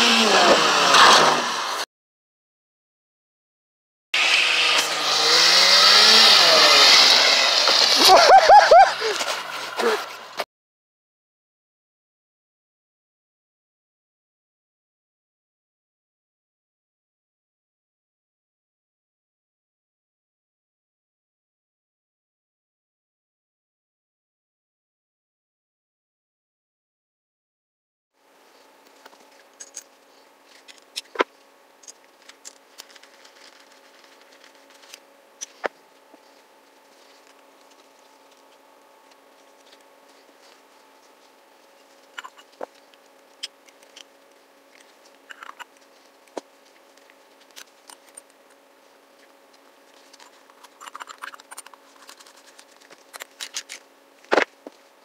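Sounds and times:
small metal parts clicking: 29.6s - 29.9s.

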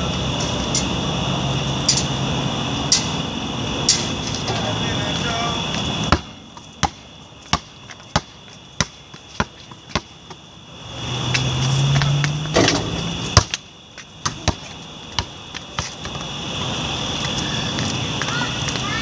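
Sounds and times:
high insect chirring: 0.0s - 19.0s
basketball bouncing on pavement: 3.9s - 19.0s.

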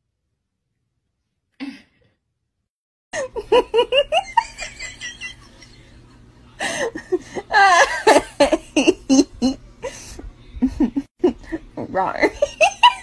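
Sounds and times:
person laughing: 3.2s - 5.7s.

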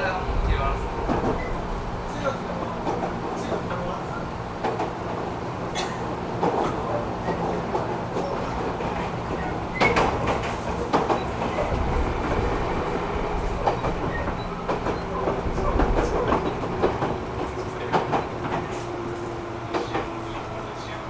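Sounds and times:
steady train hum: 0.0s - 21.0s
train wheels rumbling on rail: 0.0s - 21.0s
clacks over rail joints: 4.6s - 21.0s.

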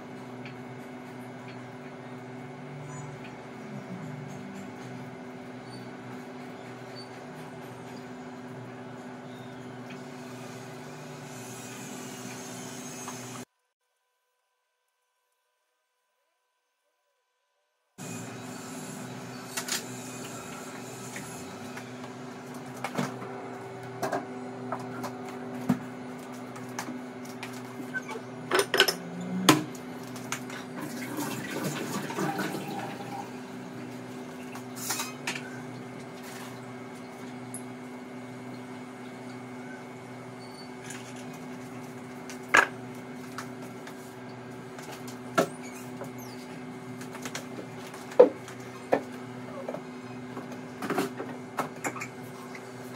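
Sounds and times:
water running at sink: 30.4s - 33.6s.

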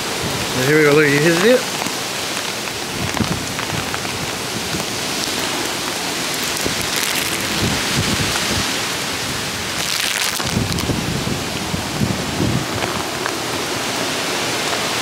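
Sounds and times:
heavy rain pouring: 0.0s - 15.0s
low gusty rumbles: 2.6s - 14.1s.

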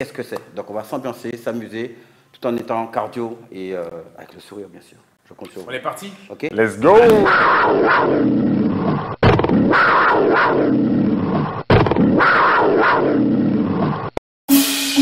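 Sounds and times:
big cat roar: 7.1s - 14.0s.

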